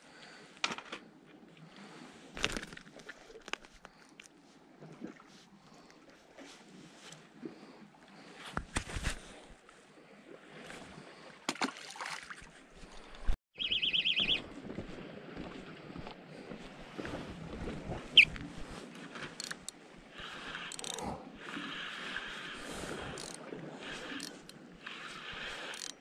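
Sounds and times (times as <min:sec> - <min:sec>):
rod and line handling: 0:00.6 - 0:04.4, 0:08.1 - 0:09.6, 0:17.0 - 0:26.0
fishing reel gears whirring: 0:19.3 - 0:19.8, 0:20.6 - 0:21.1, 0:22.9 - 0:26.0.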